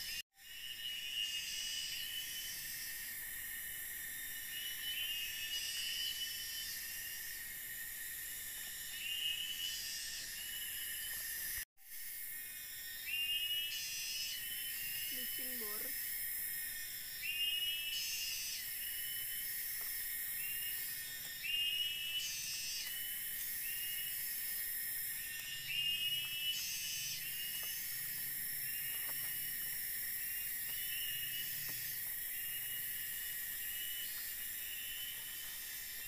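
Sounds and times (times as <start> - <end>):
insects droning: 0.0 - 36.0.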